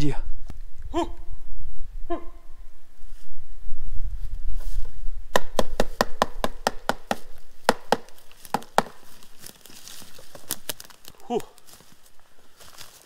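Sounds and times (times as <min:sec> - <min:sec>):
sharp rhythmic knocking: 0:05.4 - 0:09.0.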